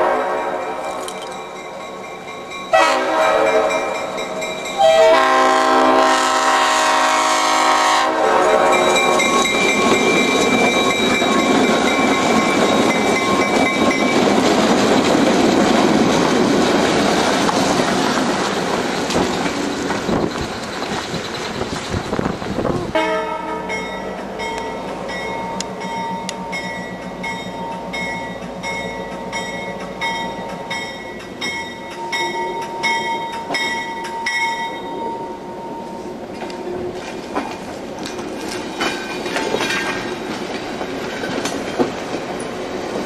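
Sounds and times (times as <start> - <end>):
locomotive air horn blasts: 0.0 - 0.8, 2.7 - 4.0, 4.8 - 9.0, 22.9 - 23.8
train wheels on rails: 0.0 - 43.0
locomotive engine running: 8.6 - 43.0.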